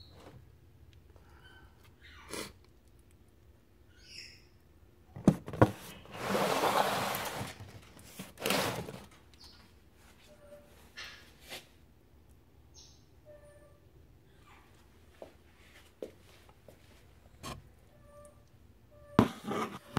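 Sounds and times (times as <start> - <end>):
rustling noise: 5.4 - 9.2.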